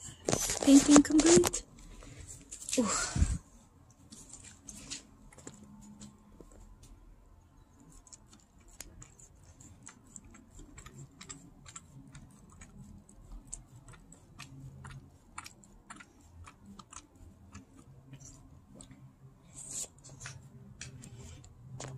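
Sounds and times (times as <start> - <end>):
dog licking and smacking: 7.8 - 21.4.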